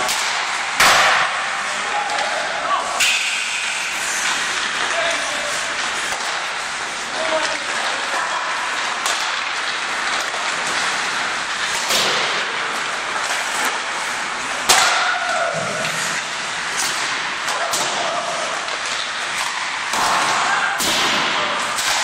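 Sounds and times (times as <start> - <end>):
hockey pucks hitting sticks and boards: 0.0 - 22.0
rink background noise: 0.0 - 22.0.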